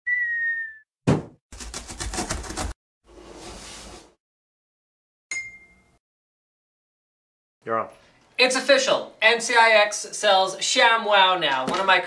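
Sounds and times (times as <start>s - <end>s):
cardboard box thud: 1.1s - 2.7s.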